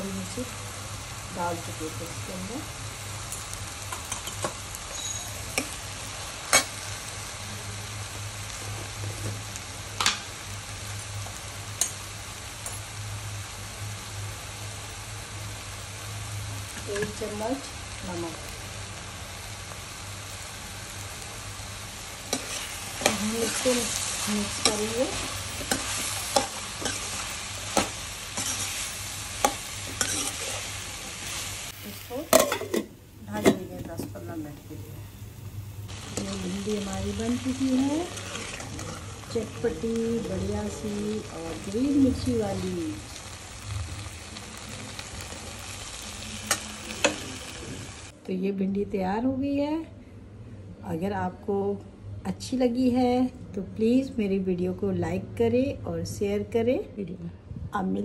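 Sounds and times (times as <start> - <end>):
okra sizzling in oil: 0.0 - 48.2
spatula scraping pan: 22.3 - 31.4, 38.0 - 39.5.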